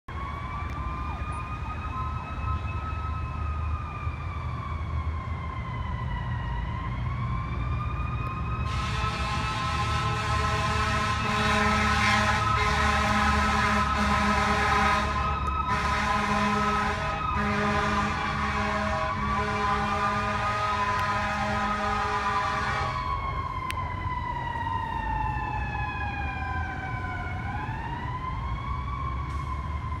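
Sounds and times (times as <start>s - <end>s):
fire engine siren wailing: 0.1s - 30.0s
low traffic rumble: 0.1s - 30.0s
fire engine horn blast: 8.5s - 23.2s.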